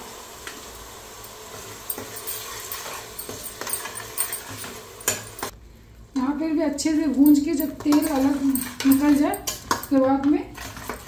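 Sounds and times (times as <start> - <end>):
faint frying sizzle: 0.0 - 11.0
steel ladle scraping and clinking pan: 1.9 - 5.5, 7.6 - 9.9, 10.6 - 11.0.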